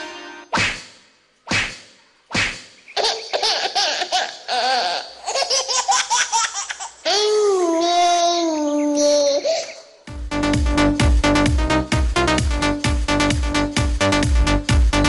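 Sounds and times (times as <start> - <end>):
sharp hits: 0.0 - 2.9.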